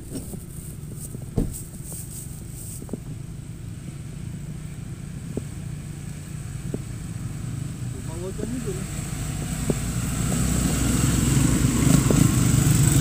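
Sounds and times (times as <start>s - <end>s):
suv engine running low speed: 0.0s - 13.0s
short thump: 1.1s - 1.9s.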